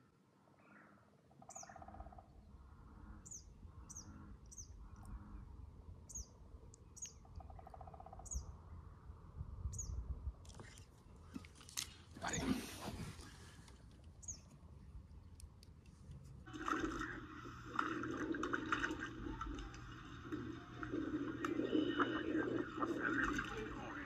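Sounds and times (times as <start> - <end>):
bird chirping: 0.6 - 8.8, 9.7 - 10.0, 14.2 - 14.5.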